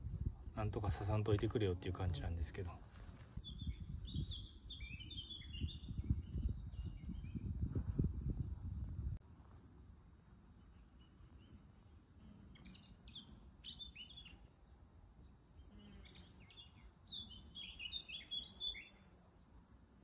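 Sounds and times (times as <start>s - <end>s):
faint bird chirps: 3.4s - 7.5s, 12.3s - 14.5s, 15.3s - 19.1s.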